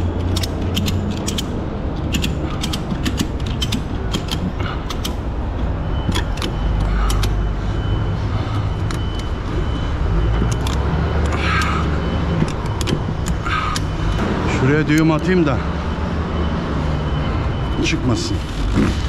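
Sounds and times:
ratchet buckle clicking: 0.0s - 5.2s, 6.1s - 7.4s, 10.4s - 10.8s.

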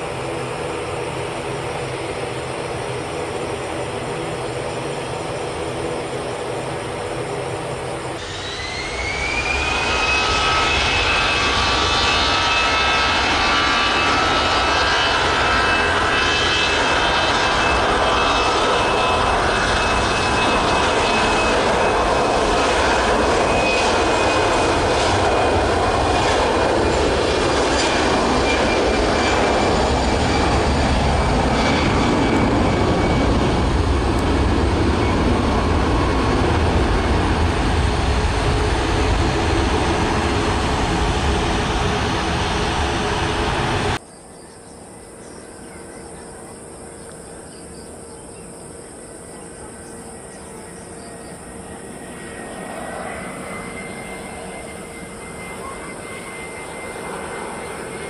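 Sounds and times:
jet engines spooling up: 0.0s - 44.0s, 48.6s - 58.0s.

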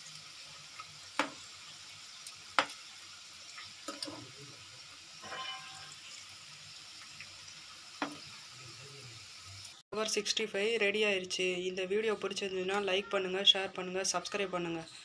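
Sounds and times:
food frying in hot oil: 0.0s - 9.8s.

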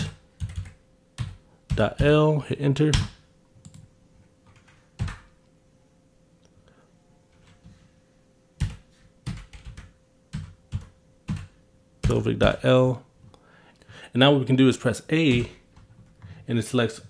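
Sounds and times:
computer keyboard keystrokes: 0.0s - 1.9s, 8.6s - 12.2s.

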